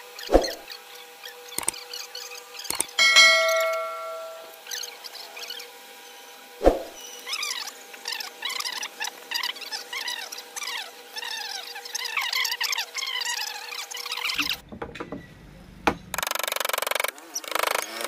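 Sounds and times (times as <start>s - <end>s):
bright bell ding: 3.0s - 4.6s.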